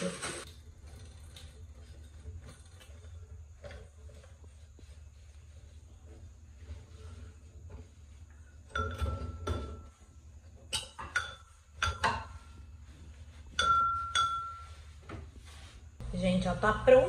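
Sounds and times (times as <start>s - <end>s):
glass shades clinking: 8.5s - 10.0s, 10.6s - 15.6s.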